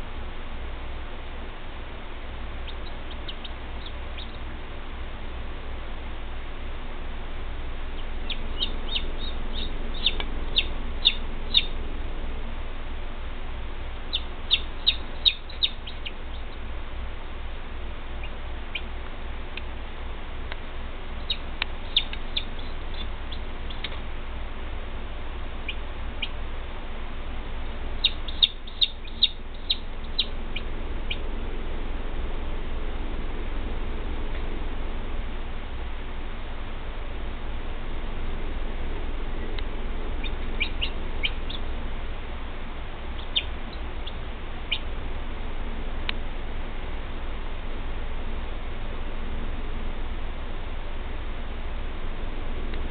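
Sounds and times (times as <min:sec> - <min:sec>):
steady low hum: 0:00.0 - 0:52.9
chicks peeping: 0:02.6 - 0:04.4, 0:08.0 - 0:11.8, 0:14.1 - 0:16.6, 0:18.2 - 0:18.9, 0:21.2 - 0:24.0, 0:28.0 - 0:31.2, 0:40.2 - 0:41.7, 0:43.2 - 0:44.8.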